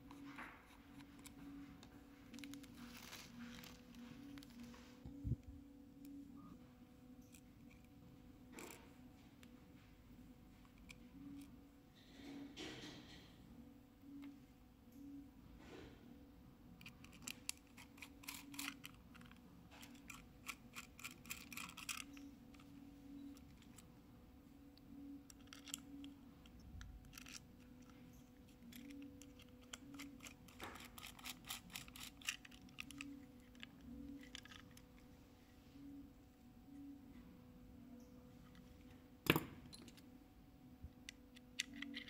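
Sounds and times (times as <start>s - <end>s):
metal screws clicking: 16.8s - 22.6s, 25.3s - 34.9s
screwdriver working screws: 28.7s - 33.2s.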